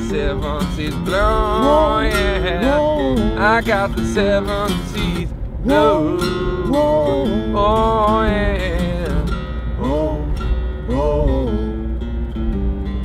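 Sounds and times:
person singing wordless melody: 0:00.0 - 0:12.0
acoustic guitar strumming: 0:00.0 - 0:13.0
car cabin rumble: 0:00.0 - 0:13.0.

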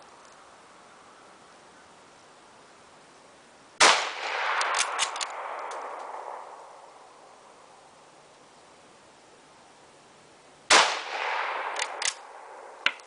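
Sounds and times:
rifle shot echoing: 0:03.8 - 0:06.8, 0:10.7 - 0:13.0
sharp metallic clicks: 0:04.6 - 0:06.1, 0:11.7 - 0:12.2.

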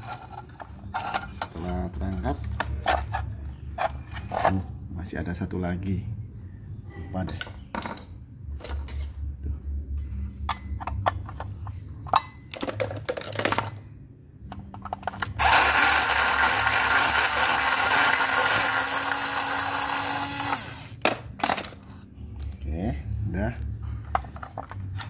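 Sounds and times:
tools and metal parts clicking: 0:00.0 - 0:04.6, 0:10.4 - 0:15.8, 0:24.0 - 0:25.0
electric screwdriver whine: 0:15.4 - 0:21.0.

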